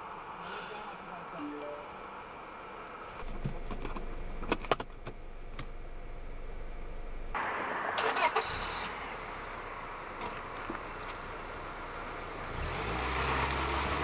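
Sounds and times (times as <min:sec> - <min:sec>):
car engine starting with rush: 0:07.4 - 0:14.0.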